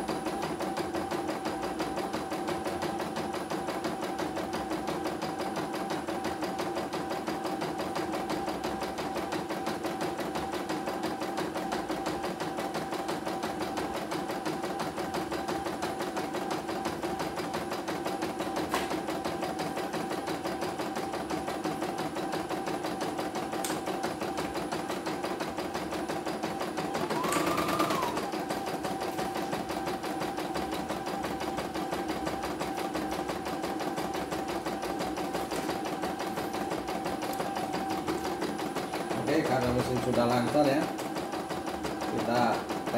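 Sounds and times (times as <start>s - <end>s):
embroidery machine stitching: 0.0s - 42.9s
machine whine: 26.9s - 28.4s.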